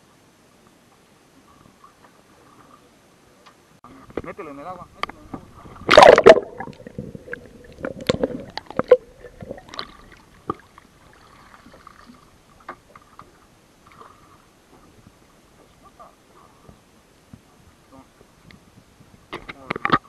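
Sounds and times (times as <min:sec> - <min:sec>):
seawater splashing and gurgling: 0:05.3 - 0:17.0.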